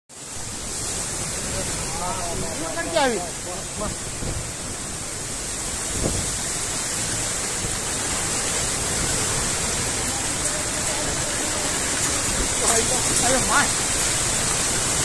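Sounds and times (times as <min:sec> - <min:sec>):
heavy rain: 0:00.1 - 0:15.0
strong storm wind: 0:00.1 - 0:15.0.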